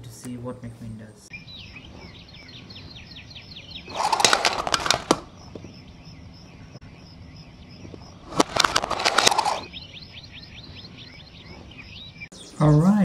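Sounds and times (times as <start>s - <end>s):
faint bird chirps: 1.3s - 13.0s
toy car knocking into toy cart: 3.9s - 5.3s
toy car wheels rattling and clicking: 3.9s - 5.3s, 8.3s - 9.7s.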